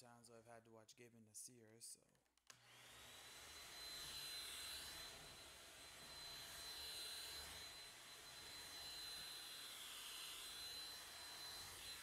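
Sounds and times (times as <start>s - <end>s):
vacuum motor whining: 2.5s - 12.0s.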